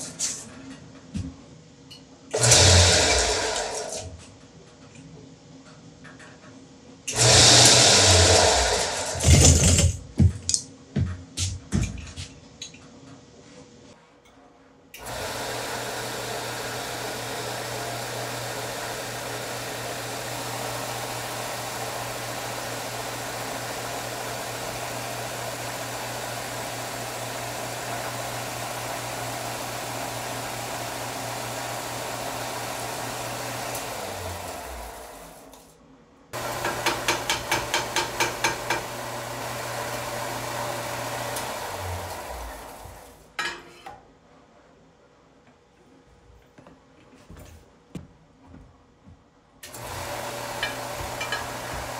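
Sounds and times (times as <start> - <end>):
belt sander motor running: 7.1 - 9.2, 15.0 - 35.4, 36.4 - 43.1, 49.7 - 51.9.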